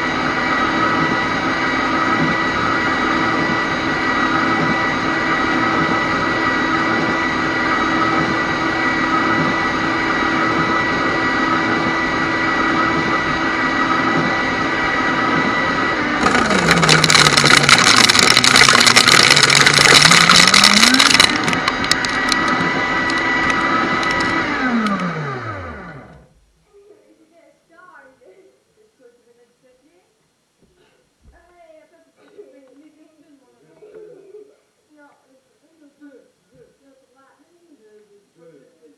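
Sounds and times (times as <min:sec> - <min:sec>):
shredder motor humming: 0:00.0 - 0:26.3
cd cracking and crunching: 0:16.2 - 0:25.1.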